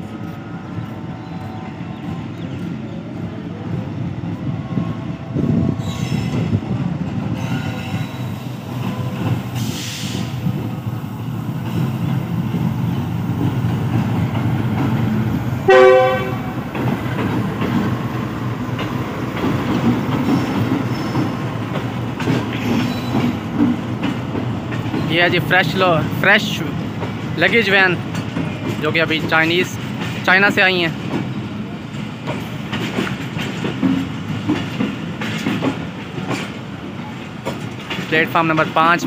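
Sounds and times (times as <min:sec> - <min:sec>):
train engine and wheels rumbling: 0:00.0 - 0:39.0
train horn blast: 0:15.7 - 0:16.6.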